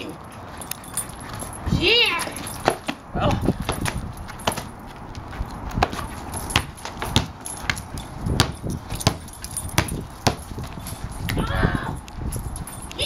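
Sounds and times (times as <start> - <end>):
ball bouncing on concrete: 2.4 - 11.4.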